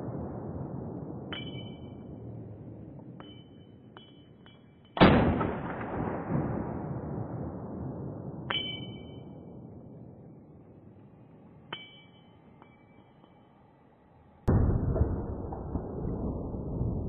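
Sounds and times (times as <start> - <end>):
ringing metallic pings: 1.3 - 2.2, 3.0 - 5.1, 8.5 - 9.6, 11.6 - 13.8
rifle shot echoing: 5.0 - 10.0.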